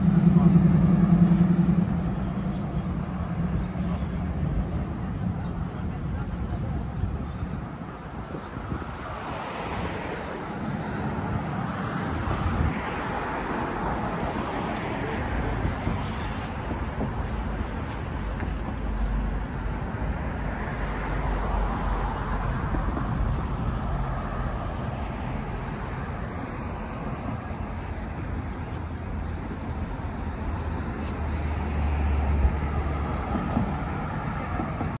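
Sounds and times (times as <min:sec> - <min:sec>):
deep low rumble: 0:00.0 - 0:05.5
passing cars: 0:00.0 - 0:35.0.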